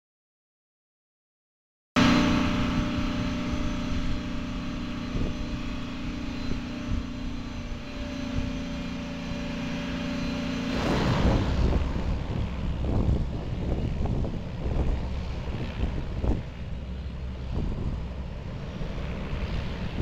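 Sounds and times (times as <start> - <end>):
loud rushing noise: 2.0 - 16.5
high engine whine: 2.0 - 20.0
turboprop engines running: 2.0 - 20.0.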